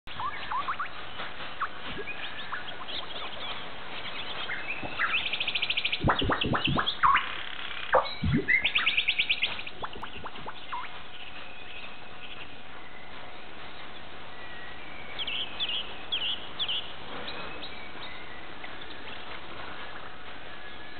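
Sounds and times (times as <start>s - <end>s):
small birds chirping: 0.0s - 20.9s
bird trills: 0.1s - 13.2s.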